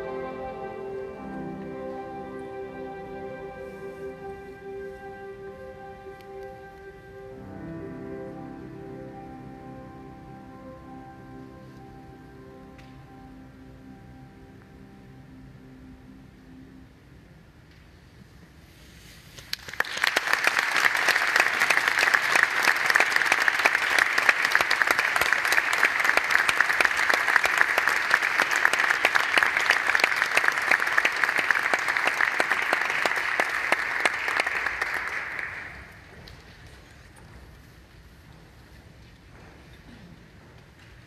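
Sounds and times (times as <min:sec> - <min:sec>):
audience applauding: 0:19.4 - 0:36.4.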